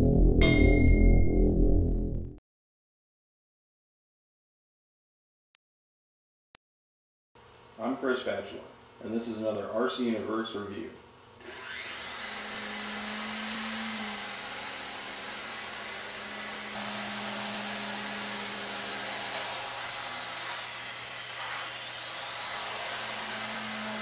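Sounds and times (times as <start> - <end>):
toy helicopter rotors whirring: 11.4 - 24.0.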